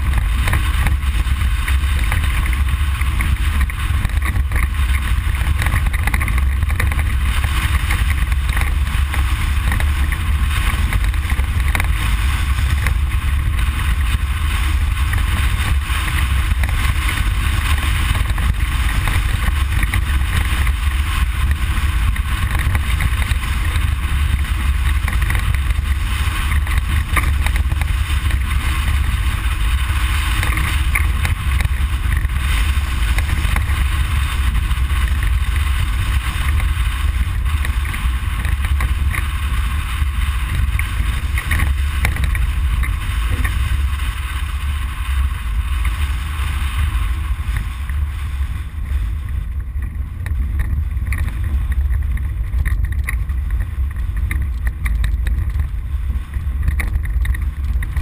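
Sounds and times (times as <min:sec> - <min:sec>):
deep rumble: 0:00.0 - 0:58.0
engine drone: 0:00.0 - 0:58.0
tyre and road noise hiss: 0:00.0 - 0:58.0.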